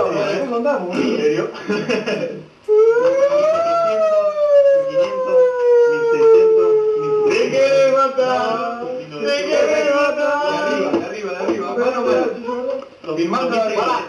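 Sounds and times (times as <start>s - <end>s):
long falling howl: 2.7s - 7.4s.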